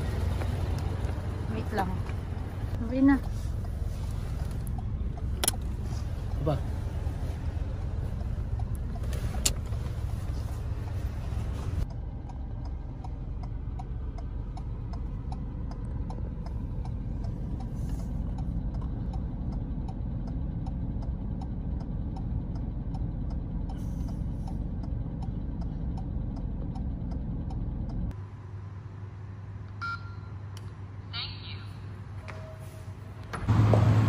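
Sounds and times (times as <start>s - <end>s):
car engine idling hum: 0.0s - 29.7s, 33.1s - 34.0s
indicator relay ticking: 11.9s - 23.8s, 24.4s - 28.2s.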